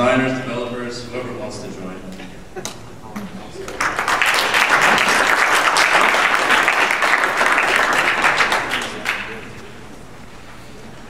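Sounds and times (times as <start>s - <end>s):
audience applauding: 3.6s - 9.7s.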